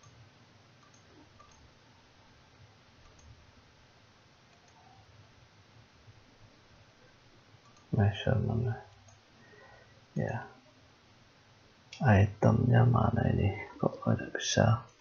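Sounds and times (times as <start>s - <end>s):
computer mouse clicks: 0.0s - 0.2s, 0.8s - 1.7s, 3.0s - 3.4s, 4.5s - 5.0s, 7.6s - 8.0s, 8.9s - 9.2s.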